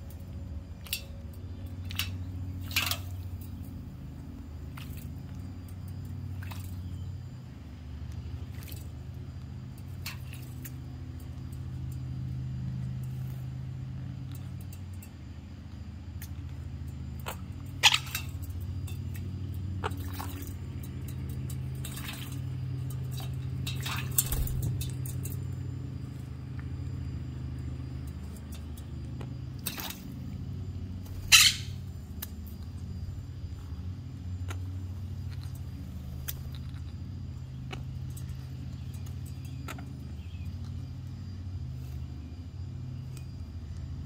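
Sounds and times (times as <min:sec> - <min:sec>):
low machine hum: 0:00.0 - 0:44.0
parrots splashing in water: 0:01.8 - 0:04.0, 0:04.6 - 0:07.0, 0:08.4 - 0:11.3, 0:17.2 - 0:25.4, 0:29.6 - 0:32.7
wings fluttering: 0:17.2 - 0:26.3, 0:28.2 - 0:33.7.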